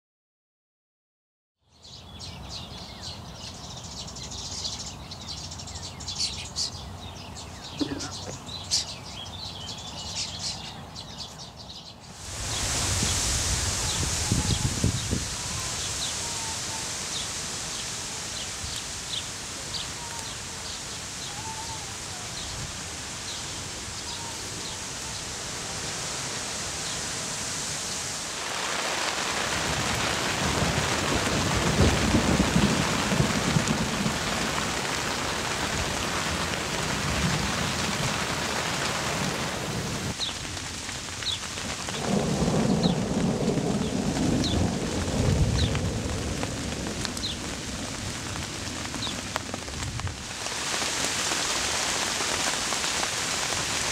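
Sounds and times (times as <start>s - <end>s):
heavy rain: 1.9s - 11.2s, 12.0s - 53.9s
thunder rumbling: 12.2s - 26.9s, 27.8s - 51.1s.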